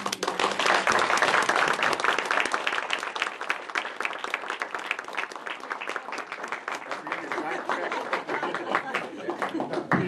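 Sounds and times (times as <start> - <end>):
audience applauding: 0.0 - 10.0.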